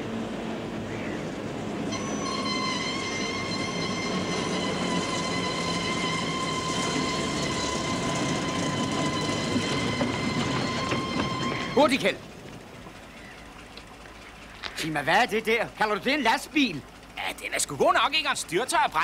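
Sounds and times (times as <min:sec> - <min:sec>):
high-pitched whine: 0:00.0 - 0:12.2
shunting tractor rumbling on rails: 0:00.0 - 0:19.0.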